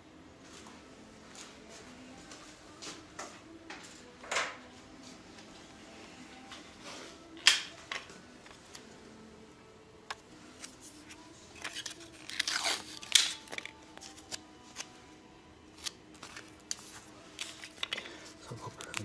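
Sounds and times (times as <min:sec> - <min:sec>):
tape and dressing rustling: 0:10.4 - 0:15.0
tape peeling crackle: 0:10.5 - 0:15.0, 0:15.7 - 0:18.0.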